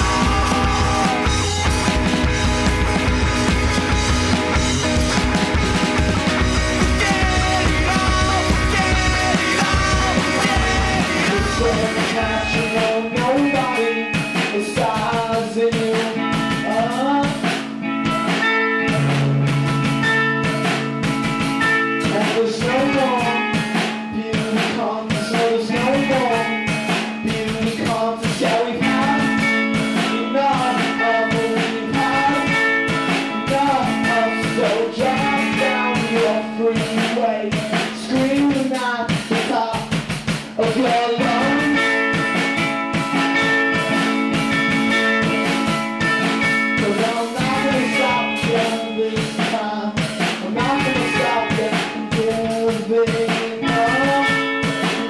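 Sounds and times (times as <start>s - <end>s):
deep bass: 0.0s - 13.3s
music with steady beat: 0.0s - 55.0s.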